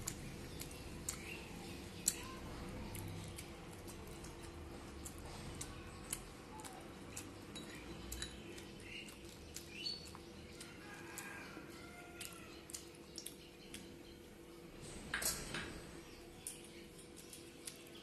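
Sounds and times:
fingers picking food from plate: 0.0s - 14.3s
wet chewing sounds: 0.0s - 14.6s, 16.2s - 18.0s.

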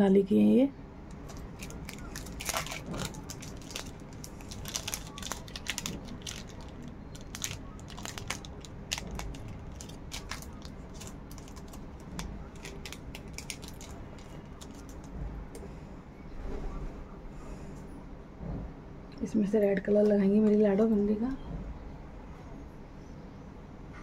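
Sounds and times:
small items clicking and tapping: 1.1s - 15.1s.

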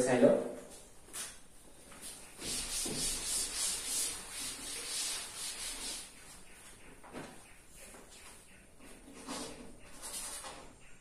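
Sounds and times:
cloth rubbing on chalkboard: 1.9s - 6.8s, 8.2s - 10.6s.

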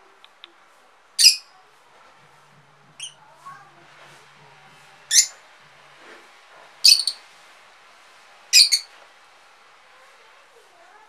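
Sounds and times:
lovebirds chirping: 1.2s - 1.5s, 3.0s - 3.2s, 5.1s - 5.4s, 6.8s - 7.2s, 8.5s - 8.9s.

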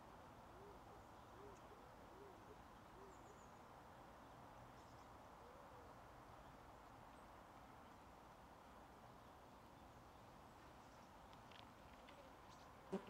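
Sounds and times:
faint open-air hiss: 0.0s - 13.0s
distant bird calling: 0.5s - 3.7s.

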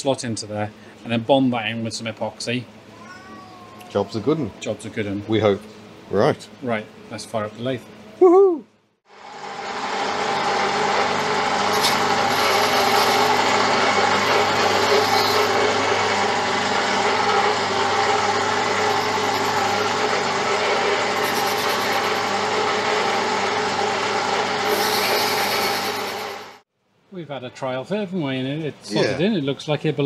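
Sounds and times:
metal lathe whirring: 9.2s - 26.6s.

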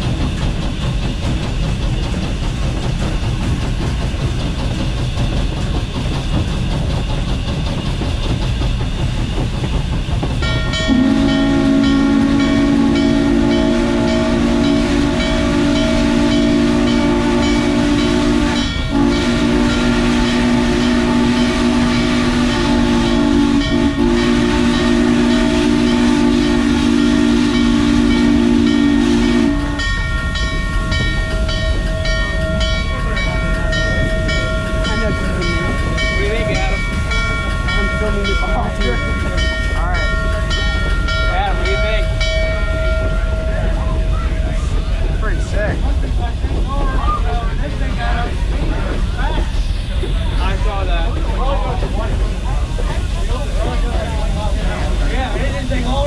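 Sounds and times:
moving train rumble: 0.0s - 56.0s
locomotive bell ringing: 10.4s - 45.2s
steam whistle blowing: 10.9s - 29.9s.

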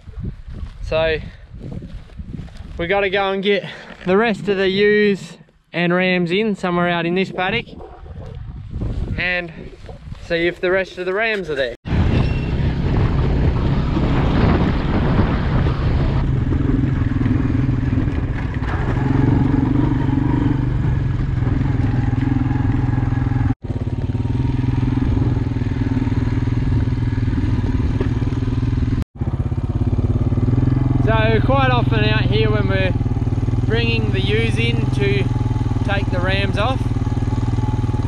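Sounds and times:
quad bike engine running: 12.8s - 38.0s.

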